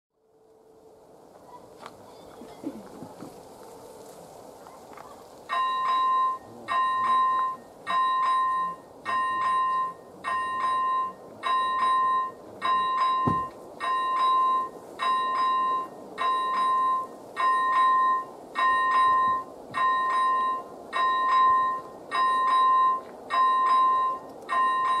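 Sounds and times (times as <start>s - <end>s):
electronic warning bell ringing: 5.5s - 25.0s.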